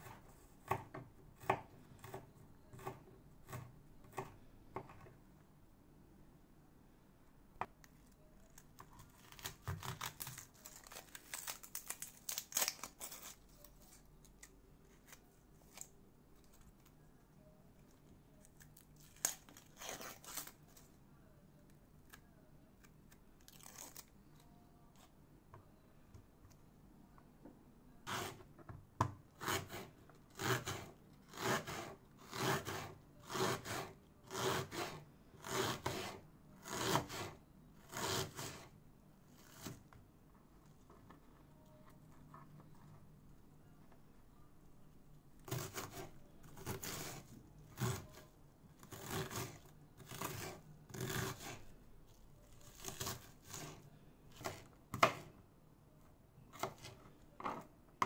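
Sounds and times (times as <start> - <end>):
knife slicing onion on board: 0.0 - 4.9, 28.1 - 28.4, 29.4 - 37.3, 37.9 - 38.7, 45.5 - 47.2, 48.9 - 51.6, 52.8 - 53.8
knife and hands scraping board: 28.1 - 28.4, 29.4 - 38.7, 45.5 - 48.2, 48.9 - 51.6, 52.8 - 53.8.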